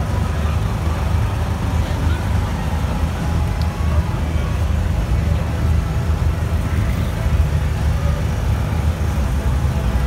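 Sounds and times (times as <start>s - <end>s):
faint crowd chatter: 0.0s - 10.0s.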